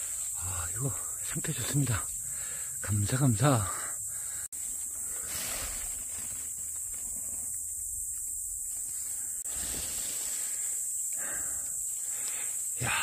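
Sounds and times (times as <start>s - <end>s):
insects chirring: 0.0s - 13.0s
rustling in dry leaf litter: 4.6s - 7.4s, 8.8s - 10.8s.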